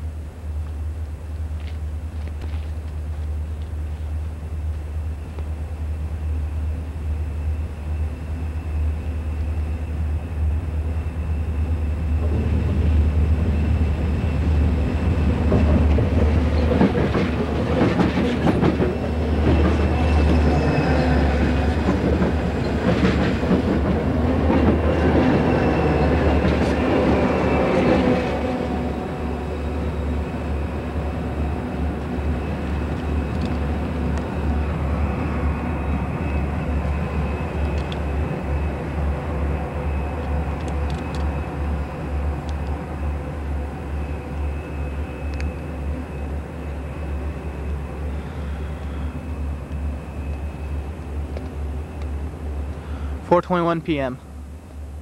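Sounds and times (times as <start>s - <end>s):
diesel locomotive engine rumble: 0.0s - 55.0s
train wheels knocking on rails: 15.3s - 20.5s, 21.4s - 27.2s.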